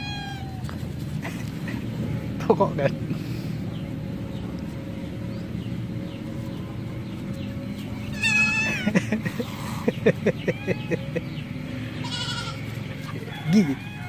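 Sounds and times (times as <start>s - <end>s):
cat meowing: 0.0s - 0.7s, 8.1s - 8.8s, 12.0s - 12.6s.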